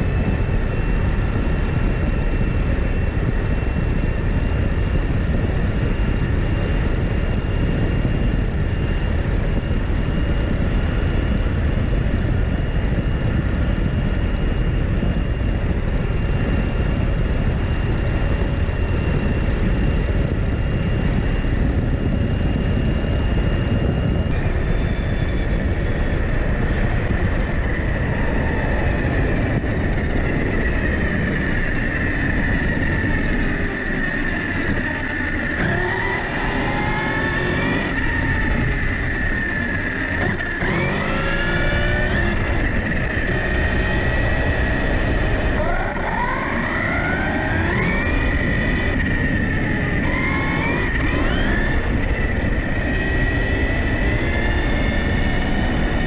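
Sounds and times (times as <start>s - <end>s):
wind and tyre noise: 0.0s - 56.0s
electric motor whining: 16.5s - 56.0s.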